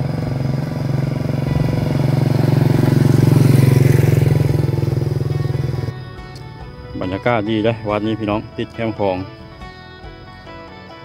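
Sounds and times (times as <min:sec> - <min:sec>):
motorcycle engine running: 0:00.0 - 0:07.2
quiet background music: 0:05.4 - 0:11.0.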